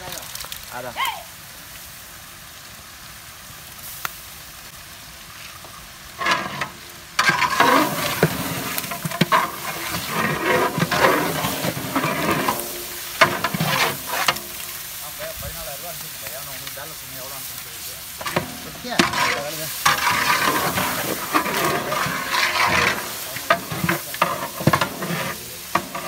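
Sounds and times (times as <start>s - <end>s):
meat sizzling: 0.0s - 26.0s
metal paddle scraping metal pot: 6.2s - 14.8s, 18.2s - 26.0s.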